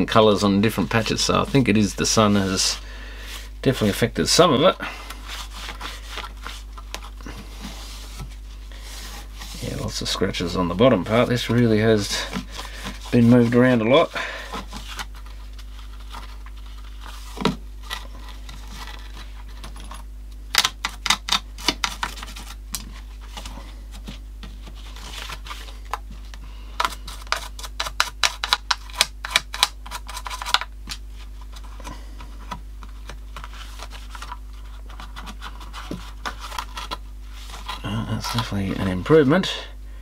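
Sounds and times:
steady low hum: 0:00.0 - 0:40.0
cloth scrubbing plastic case: 0:05.1 - 0:19.8.

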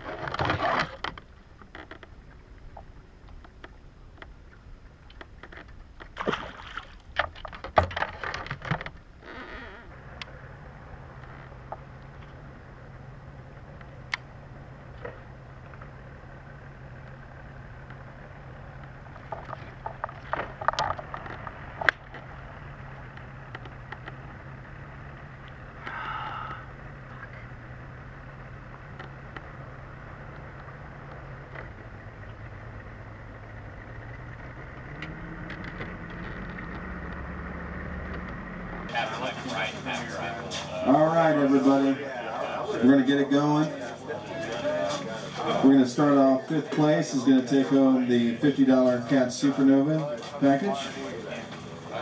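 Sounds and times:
outboard motor humming: 0:00.0 - 0:52.0
clicks and knocks: 0:07.2 - 0:09.0.

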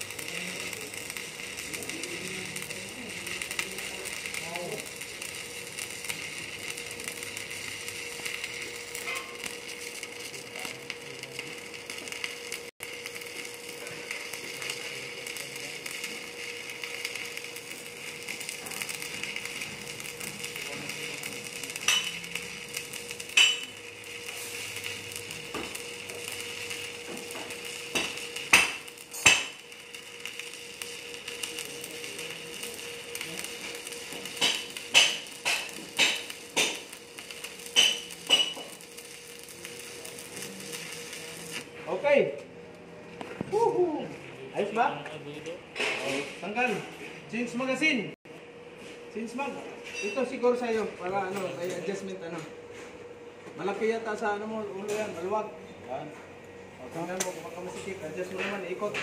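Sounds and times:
sharp welding pops: 0:00.0 - 0:41.7, 0:54.8 - 0:55.4, 0:57.0 - 0:59.0
welding arc crackling: 0:00.0 - 0:48.2, 0:49.2 - 0:52.6, 0:53.6 - 0:55.6, 0:56.6 - 0:59.0.

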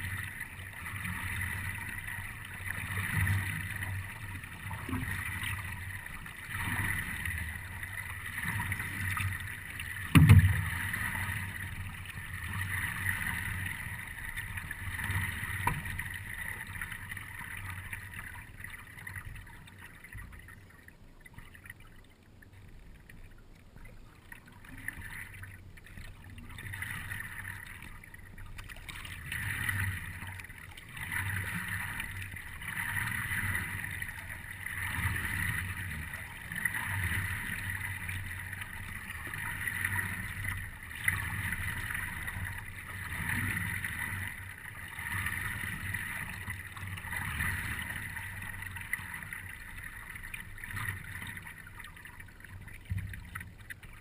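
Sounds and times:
water lapping against paddleboard: 0:23.2 - 0:54.0.

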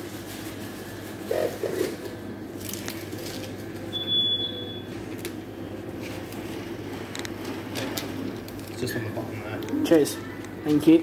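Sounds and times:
low electrical hum: 0:00.0 - 0:11.0
high electronic beep: 0:03.9 - 0:04.8.

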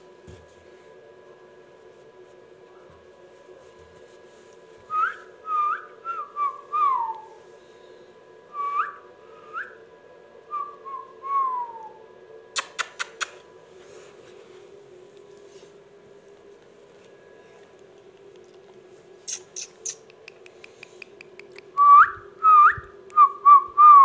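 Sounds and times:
quick sharp clicks: 0:12.6 - 0:13.4.

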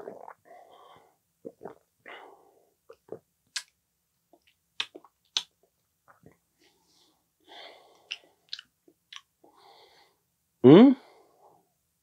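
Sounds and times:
person breathing: 0:00.5 - 0:01.2, 0:06.6 - 0:08.6, 0:09.4 - 0:10.3
tongue clicks: 0:04.4 - 0:05.5
wet lip smacks: 0:04.8 - 0:05.5.

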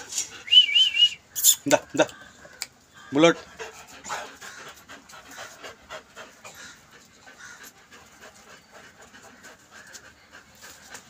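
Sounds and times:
dog panting: 0:03.2 - 0:11.0.

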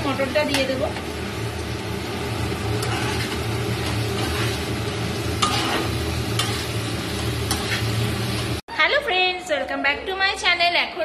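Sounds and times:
vegetables sizzling in pan: 0:00.0 - 0:08.6
metal spatula scraping pan: 0:02.8 - 0:08.5.

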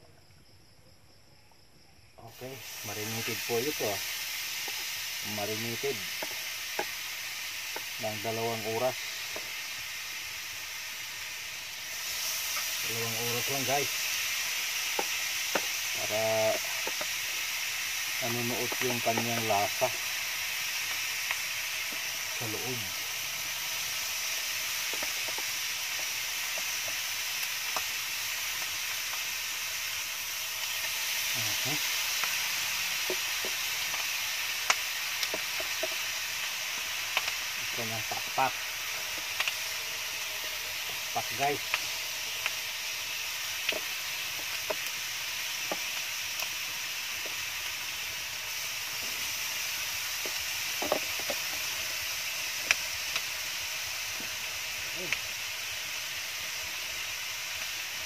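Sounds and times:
chicken sizzling on a grill pan: 0:02.2 - 0:58.0
small pops and crackles: 0:03.7 - 0:09.7, 0:12.0 - 0:22.8, 0:23.9 - 0:57.9
sharp clicks and pops: 0:06.0 - 0:08.0, 0:16.5 - 0:17.4, 0:32.1 - 0:36.1, 0:36.7 - 0:42.6, 0:43.6 - 0:46.6, 0:50.0 - 0:51.7, 0:52.5 - 0:53.3.

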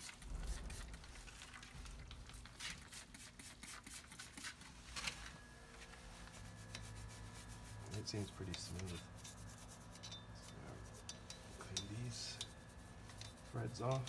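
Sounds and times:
faint low hum: 0:04.0 - 0:14.0
hand tools clicking and rubbing: 0:07.9 - 0:14.0.

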